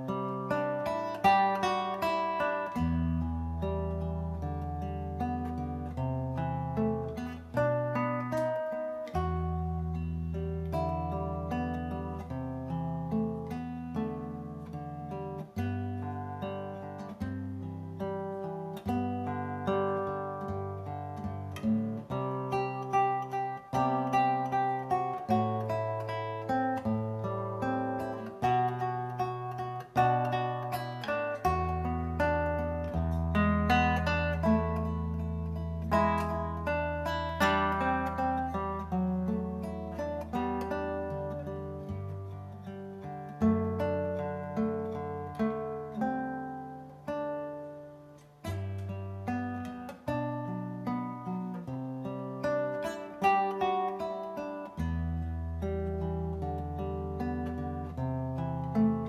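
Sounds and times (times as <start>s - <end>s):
classical guitar fingerstyle: 0.0s - 59.0s.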